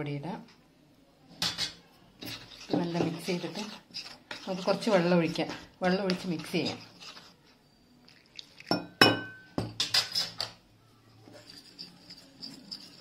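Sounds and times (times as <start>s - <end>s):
metal spoon clinking in ceramic bowl: 8.6s - 10.6s, 11.4s - 13.0s.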